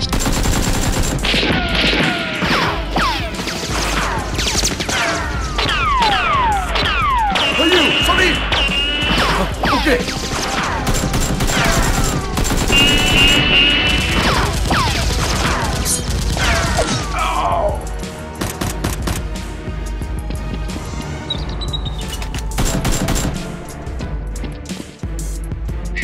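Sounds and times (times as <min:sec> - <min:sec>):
gunfire: 0:00.0 - 0:17.1, 0:22.6 - 0:23.5
action background music: 0:00.0 - 0:26.0.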